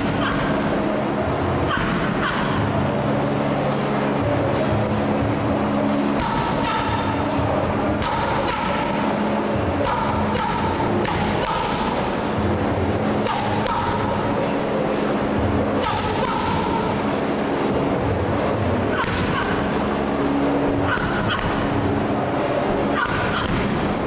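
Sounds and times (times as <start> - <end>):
background music: 0.0 - 24.0
boxing gloves striking mitts: 6.1 - 7.0, 9.8 - 12.0.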